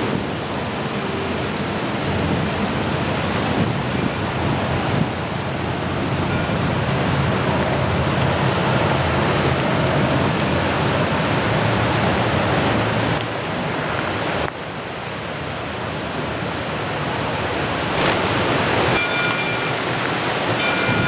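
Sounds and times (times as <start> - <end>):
steam locomotive working: 0.0 - 21.0
wind on microphone: 0.0 - 21.0
distant train whistle blasts: 20.6 - 21.0.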